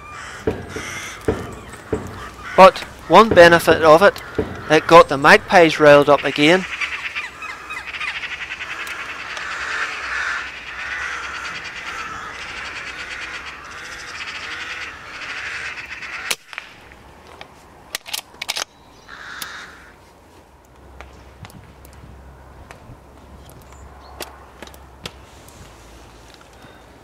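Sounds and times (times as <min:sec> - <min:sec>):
magpie rattling chatter call: 0:00.0 - 0:16.4, 0:19.1 - 0:19.9
sharp crack: 0:00.3 - 0:06.6, 0:16.2 - 0:17.0.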